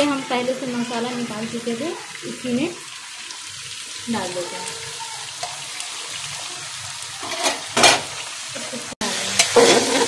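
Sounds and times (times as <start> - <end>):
meat and onions sizzling in oil: 0.0 - 10.0
metal ladle scraping pot: 7.2 - 8.1, 9.3 - 10.0.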